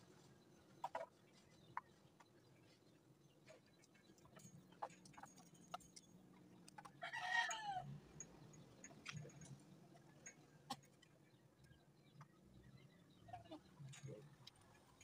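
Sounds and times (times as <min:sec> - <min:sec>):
rooster crowing: 0:07.0 - 0:07.9.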